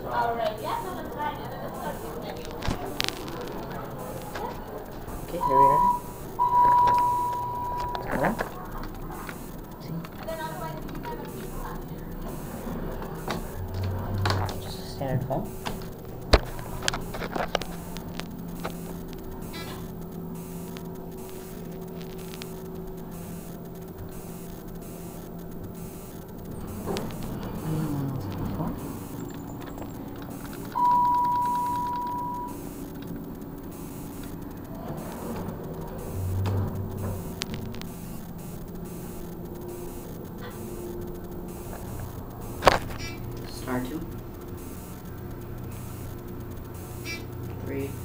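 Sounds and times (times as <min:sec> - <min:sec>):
elevator low hum: 0:00.0 - 0:48.0
light clicks: 0:06.0 - 0:48.0.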